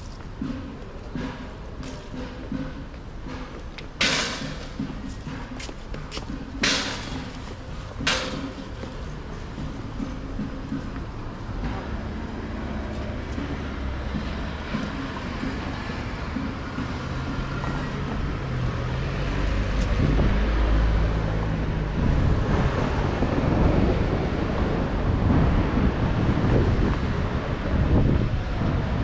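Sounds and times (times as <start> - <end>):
cars driving by: 0.0 - 29.0
wind on microphone: 19.5 - 29.0.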